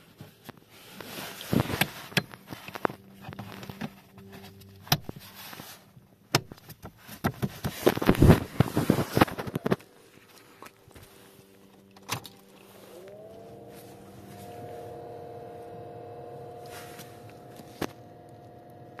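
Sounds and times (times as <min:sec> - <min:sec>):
blower fan motor whine: 0:07.8 - 0:19.0.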